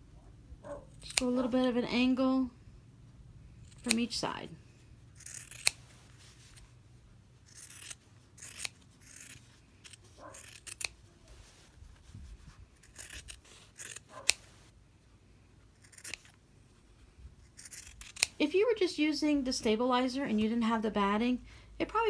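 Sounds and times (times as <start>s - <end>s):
scissors snipping fabric: 0.9s - 1.5s, 3.6s - 4.2s, 5.2s - 6.6s, 7.5s - 11.0s, 12.8s - 14.6s, 15.8s - 16.4s, 17.5s - 18.4s.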